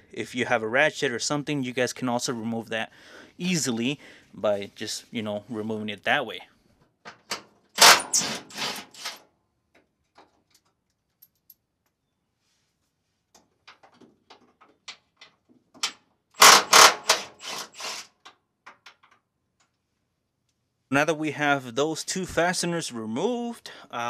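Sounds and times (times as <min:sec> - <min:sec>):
cordless power tool whirring: 0:07.8 - 0:09.2, 0:16.4 - 0:18.1.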